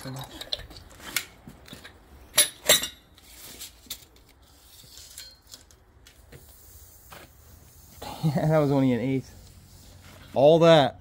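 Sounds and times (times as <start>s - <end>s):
metal tools clinking: 0.0s - 5.8s.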